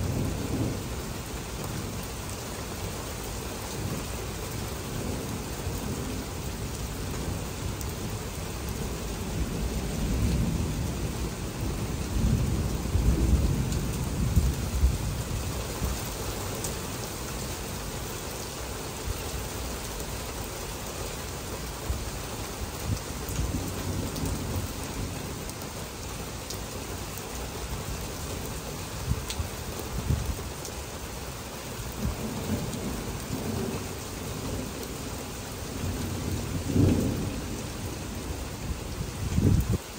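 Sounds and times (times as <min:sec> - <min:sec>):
heavy rain falling: 0:00.0 - 0:39.9
distant thunder rumbling: 0:08.3 - 0:16.1, 0:31.9 - 0:39.9.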